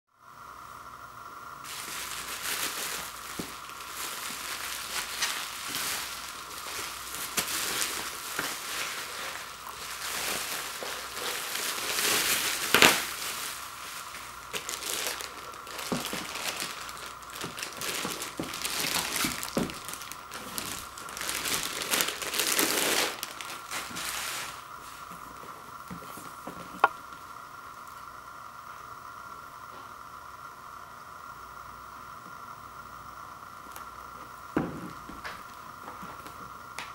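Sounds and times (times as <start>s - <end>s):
plastic wrapping crinkling: 1.6s - 27.2s.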